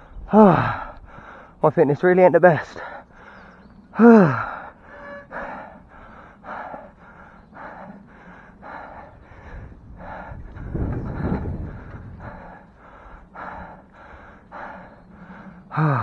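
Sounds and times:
man panting hard: 0:00.0 - 0:01.6, 0:02.8 - 0:16.0
low rumble: 0:04.4 - 0:15.7.

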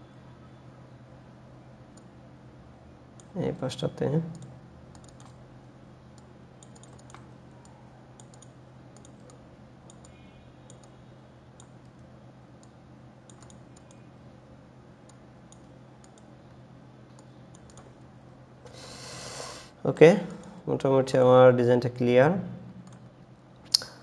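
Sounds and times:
low electrical hum: 0:00.0 - 0:24.0
mouse and keyboard clicks: 0:13.3 - 0:14.0.

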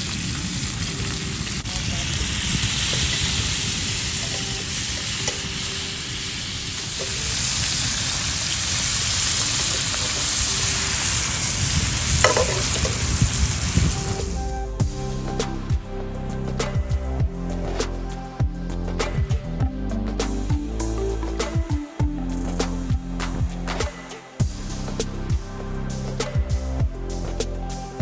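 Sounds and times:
fish frying with sizzle: 0:00.0 - 0:15.1.

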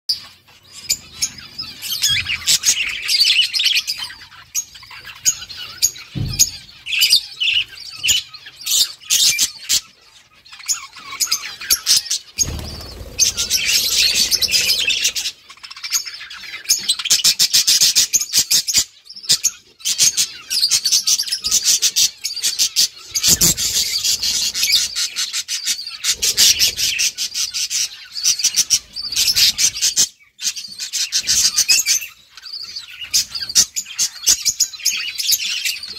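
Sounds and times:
budgerigars chirping: 0:00.1 - 0:35.9
low thumps: 0:06.2 - 0:06.9.

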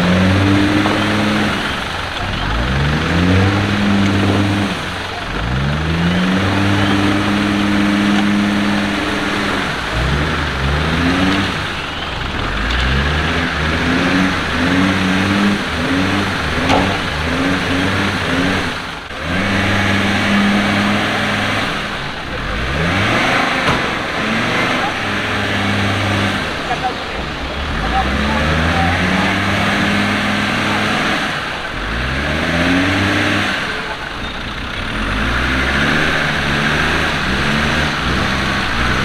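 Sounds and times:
engine revving hard: 0:00.0 - 0:39.0.

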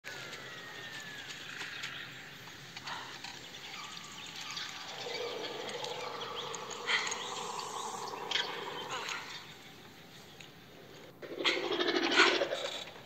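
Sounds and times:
bird chirps: 0:01.6 - 0:10.4
steady hum: 0:03.7 - 0:10.8.

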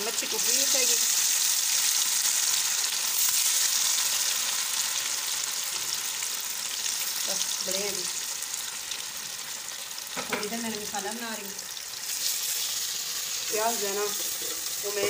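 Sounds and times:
fish frying in hot oil: 0:00.0 - 0:15.0.

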